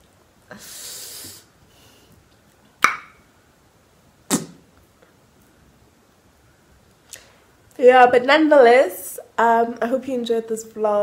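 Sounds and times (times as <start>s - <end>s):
short hiss: 0.5s - 2.1s.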